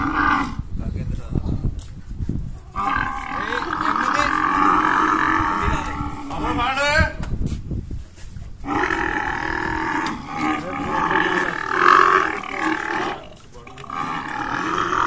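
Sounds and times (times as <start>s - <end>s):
camel bellowing: 0.0s - 0.7s, 2.7s - 6.8s, 8.6s - 15.0s.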